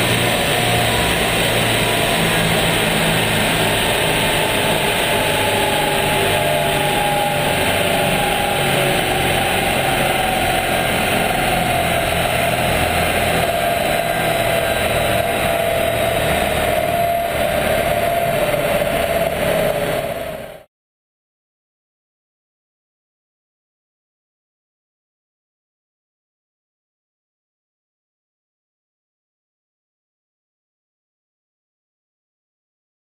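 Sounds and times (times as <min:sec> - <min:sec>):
car engine running on dynamometer: 0:00.0 - 0:20.7
turbo whine: 0:00.0 - 0:20.7.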